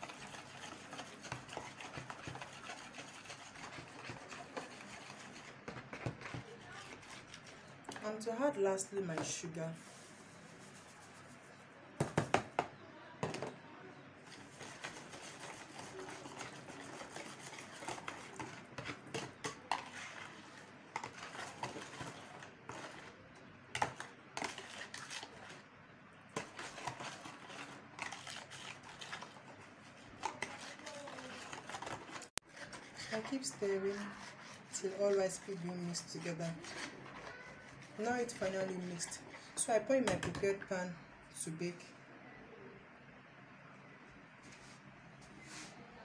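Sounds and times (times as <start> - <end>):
utensil scraping plastic bowl: 0.0 - 12.4, 14.2 - 25.6, 26.3 - 40.5
sharp knocks of plastic container: 12.0 - 13.6.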